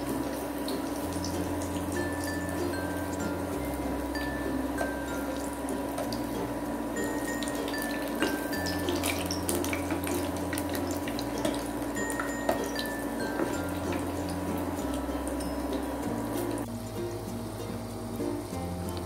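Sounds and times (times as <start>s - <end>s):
deep-frying in hot oil: 0.0s - 19.0s.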